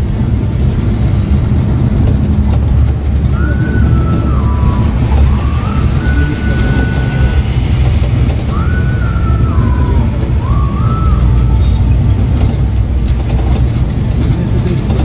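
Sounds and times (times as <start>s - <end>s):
bus engine and road rumble: 0.0s - 15.0s
thin gliding tune: 2.7s - 12.4s.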